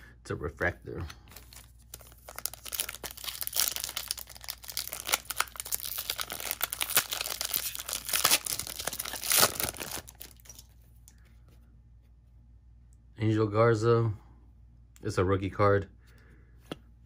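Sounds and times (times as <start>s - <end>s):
foil wrapper tearing and crinkling: 1.4s - 10.7s.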